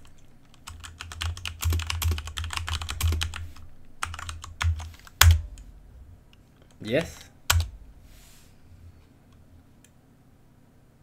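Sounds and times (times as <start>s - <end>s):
fast typing on a keyboard: 0.0s - 3.4s, 4.0s - 5.4s, 6.7s - 7.7s.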